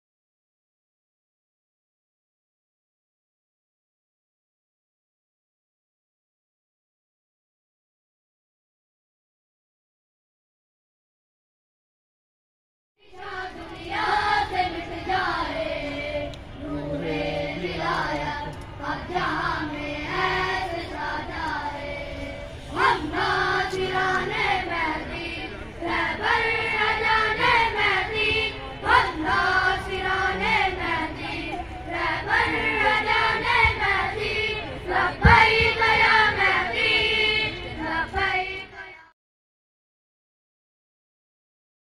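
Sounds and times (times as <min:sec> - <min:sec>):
children singing together: 0:13.1 - 0:39.0.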